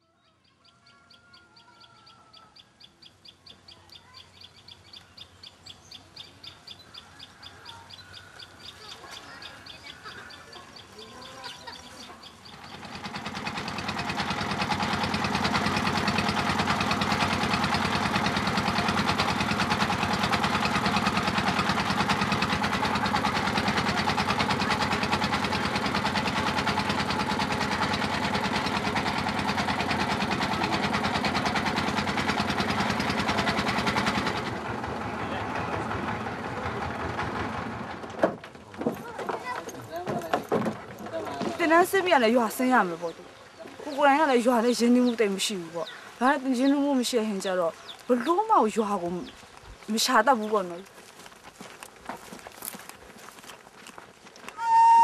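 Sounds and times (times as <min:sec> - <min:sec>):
birds chirping: 0:00.0 - 0:38.1, 0:38.7 - 0:55.0
boat engine running: 0:10.8 - 0:43.2, 0:43.9 - 0:49.4
fast high pulsing call: 0:54.6 - 0:55.0.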